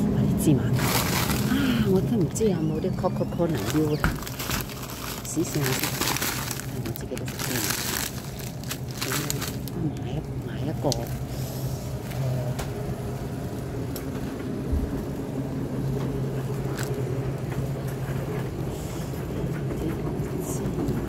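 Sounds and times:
low hum: 0.0s - 21.0s
shopping cart rolling: 0.7s - 9.7s.

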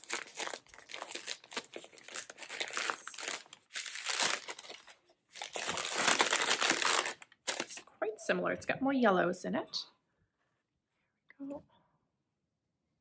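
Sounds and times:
wrapping crinkling and rustling: 0.0s - 7.9s.

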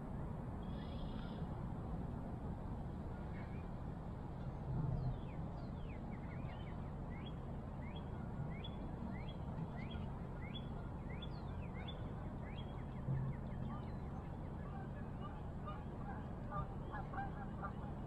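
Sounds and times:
water: 0.0s - 18.0s
wind: 0.0s - 18.0s.

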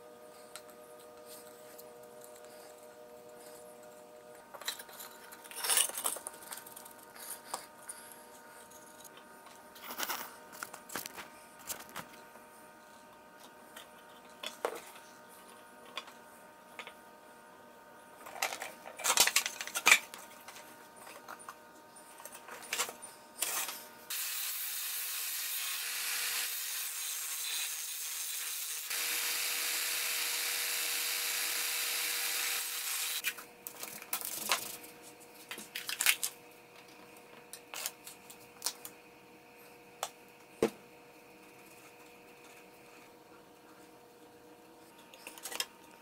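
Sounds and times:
disc sander on wood: 24.1s - 33.2s.

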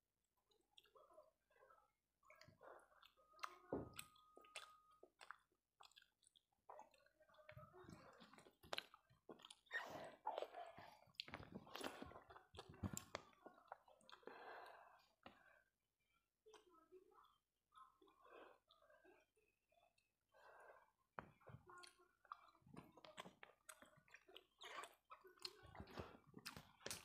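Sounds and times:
person chewing food: 0.4s - 1.4s, 2.2s - 15.6s, 21.2s - 27.0s.

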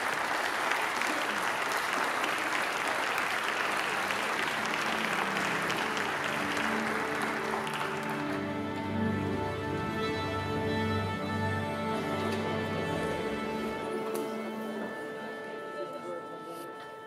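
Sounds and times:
audience applauding: 0.0s - 14.4s
soft music with held notes: 3.9s - 17.0s.

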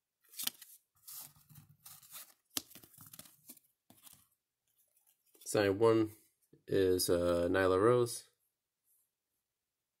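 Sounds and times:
cards scraping and rustling: 0.2s - 5.5s.

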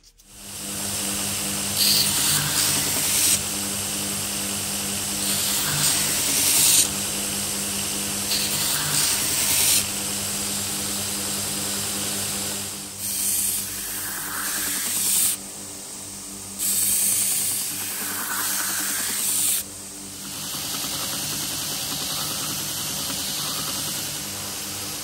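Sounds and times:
belt grinder motor hum: 1.2s - 11.1s, 13.0s - 15.4s, 16.6s - 24.3s
steel grinding on abrasive belt: 1.8s - 3.4s, 5.2s - 6.9s, 8.3s - 9.9s.

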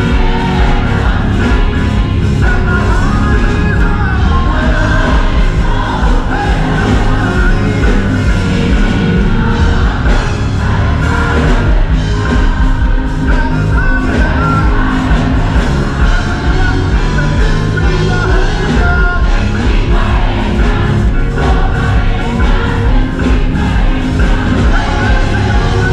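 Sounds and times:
children's choir singing: 0.0s - 25.9s
gospel band playing: 0.0s - 25.9s.

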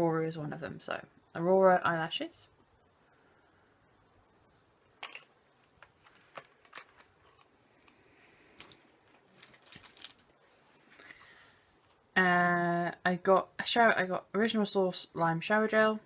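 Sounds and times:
packaged items clicking and rustling: 5.0s - 8.0s, 8.6s - 11.2s.

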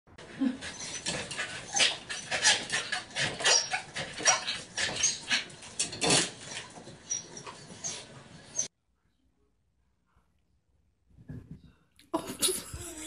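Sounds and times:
dog whimpering: 0.4s - 5.2s.

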